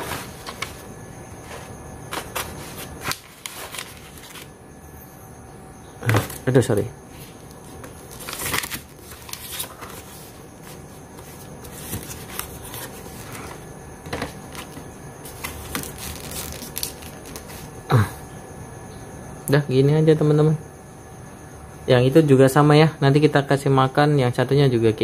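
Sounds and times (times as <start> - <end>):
paper rustling and crinkling: 0.0 - 4.5, 7.2 - 17.7.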